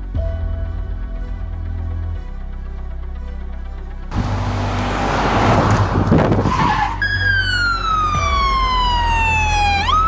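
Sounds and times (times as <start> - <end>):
car rushing past: 4.1 - 8.0
siren wailing: 6.4 - 10.0.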